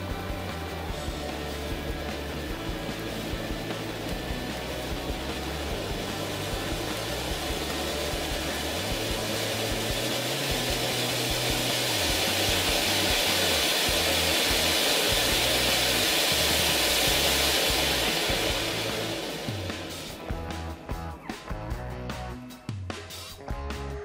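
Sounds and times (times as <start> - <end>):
firework fountain hissing: 0.0 - 20.8
background music with bass: 0.0 - 24.0.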